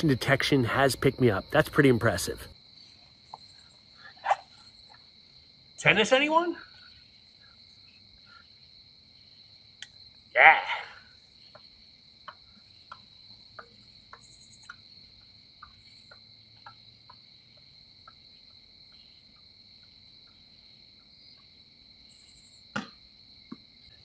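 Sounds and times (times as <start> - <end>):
crickets trilling: 0.0 - 24.0
faint regular ticks: 9.8 - 10.1, 11.4 - 21.6.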